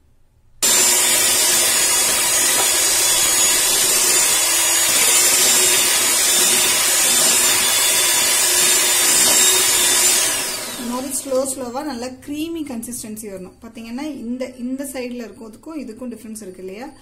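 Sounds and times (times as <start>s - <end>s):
electric hand mixer whining: 0.6s - 11.6s.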